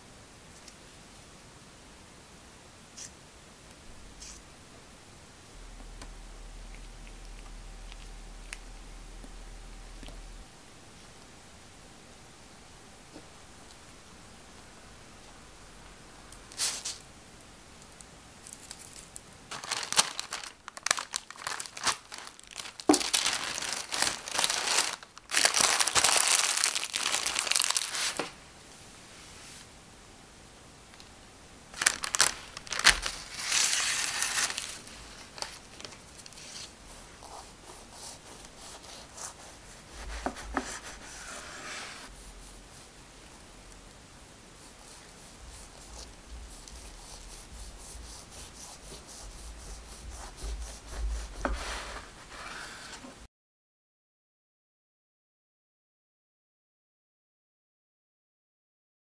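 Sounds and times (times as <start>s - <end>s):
parchment paper crinkling: 18.4s - 28.4s, 31.8s - 42.1s.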